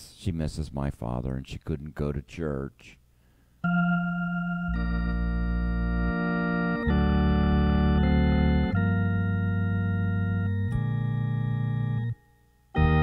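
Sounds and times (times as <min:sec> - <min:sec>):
organ playing slow chords: 0:03.6 - 0:13.0.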